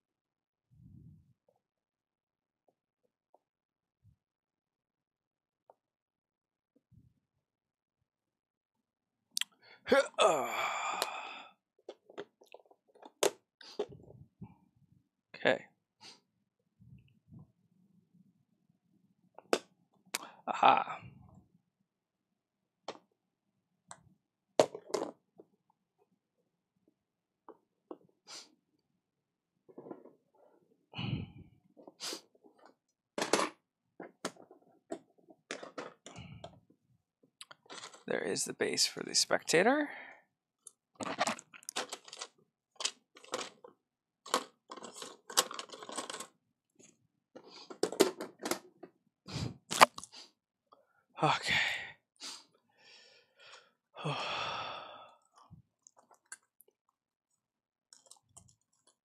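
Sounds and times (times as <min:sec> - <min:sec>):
man sighing: 0:09.8 - 0:11.5, 0:20.2 - 0:21.2, 0:31.0 - 0:31.5, 0:51.2 - 0:52.0, 0:54.0 - 0:55.2
small objects clattering: 0:34.2 - 0:36.2, 0:37.4 - 0:38.1, 0:41.0 - 0:46.4, 0:57.9 - 0:59.0.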